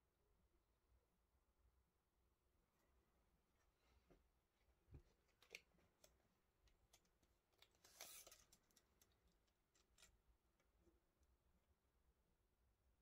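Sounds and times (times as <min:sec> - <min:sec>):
tape measure pulled out: 0:07.7 - 0:08.8.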